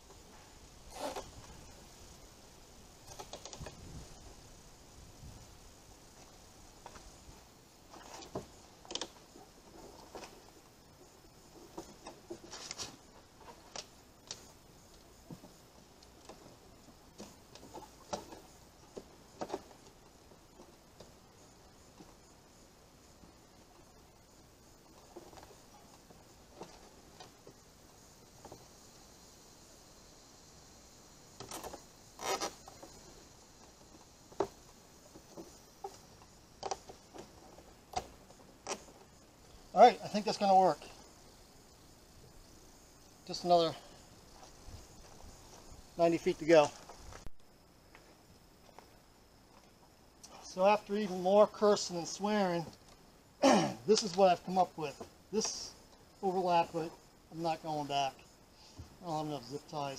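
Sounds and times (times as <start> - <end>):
tubing knocks and rustles: 6.1 - 27.7.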